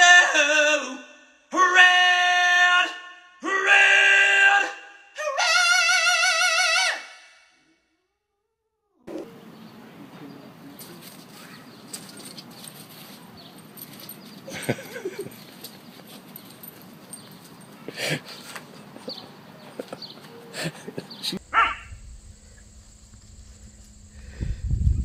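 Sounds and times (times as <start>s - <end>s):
man singing high: 0.0s - 7.0s.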